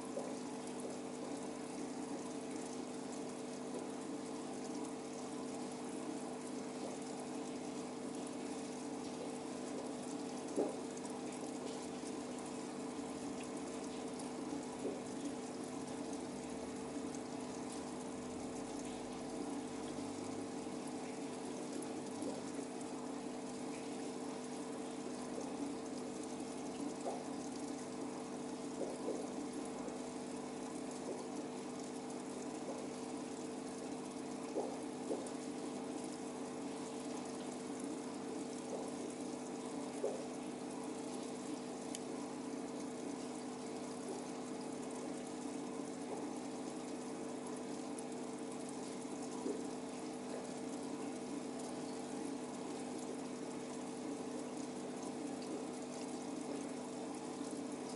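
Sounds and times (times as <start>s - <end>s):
aquarium pump humming: 0.0s - 57.9s
water bubbling: 0.0s - 57.9s.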